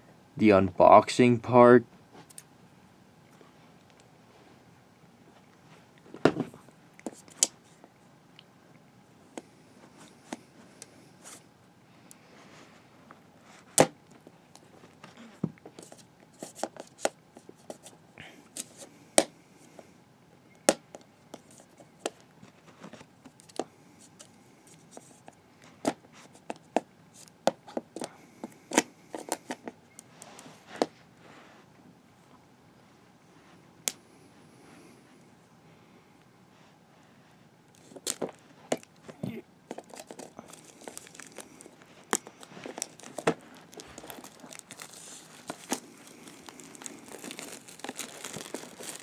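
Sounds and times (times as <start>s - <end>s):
hands crinkling plastic wrap: 39.7s - 49.0s
scissors snipping plastic wrap: 42.1s - 49.0s.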